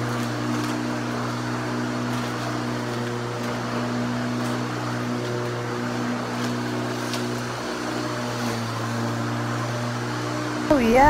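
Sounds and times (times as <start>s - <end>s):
lawn mower running: 0.0s - 11.0s.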